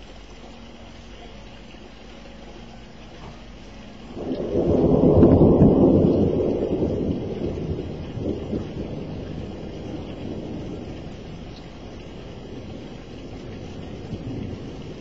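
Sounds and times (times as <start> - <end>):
rolling thunder: 4.0 - 15.0.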